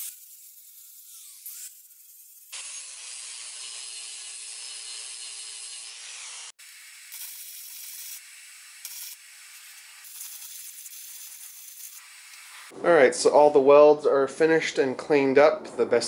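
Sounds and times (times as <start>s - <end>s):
angle grinder grinding steel: 0.0s - 12.8s
welder arc crackling: 7.1s - 12.8s.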